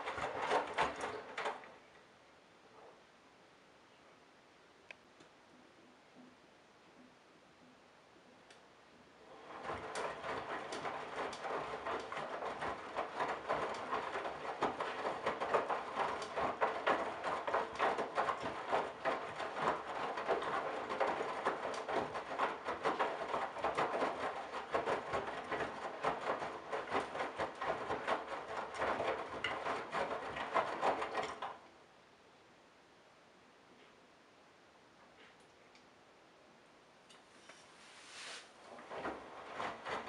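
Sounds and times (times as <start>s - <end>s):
washing machine motor running: 0.0s - 1.6s, 9.3s - 31.4s, 38.7s - 40.0s
laundry slapping inside drum: 0.0s - 1.7s, 9.3s - 31.6s, 38.7s - 40.0s.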